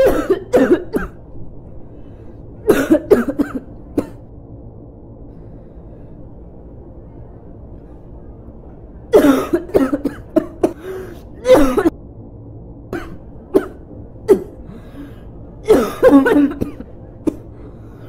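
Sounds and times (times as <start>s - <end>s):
boy coughing: 0.0s - 1.2s, 2.6s - 4.2s, 9.1s - 11.9s, 13.0s - 14.7s, 15.6s - 17.7s.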